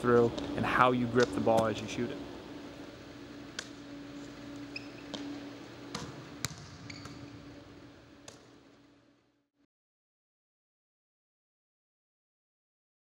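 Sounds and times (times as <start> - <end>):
steady low hum: 0.0 - 9.5
basketball bouncing on wooden floor: 4.7 - 7.3.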